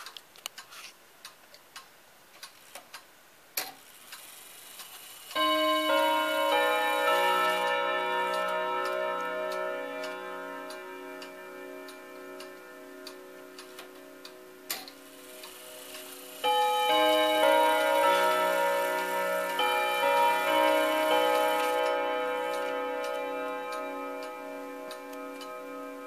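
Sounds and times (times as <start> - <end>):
clock click: 0.0 - 26.0
clock ticking: 0.0 - 26.0
clock chime notes: 5.4 - 26.0.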